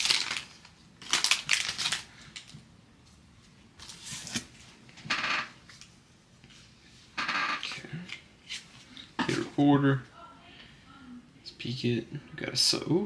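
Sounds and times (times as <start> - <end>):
foil card pack crinkling: 0.0 - 2.5
cards rustling: 0.0 - 2.6.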